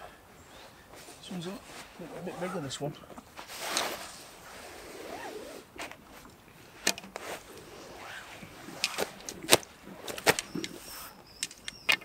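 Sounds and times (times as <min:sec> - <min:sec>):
handling rustle: 0:00.5 - 0:12.0
sharp clicks and knocks: 0:11.4 - 0:12.0.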